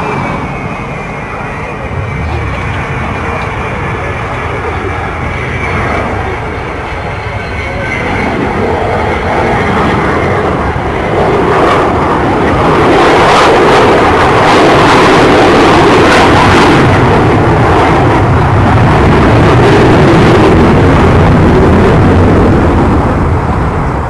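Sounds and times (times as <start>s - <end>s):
jet engines roaring: 0.0s - 24.0s.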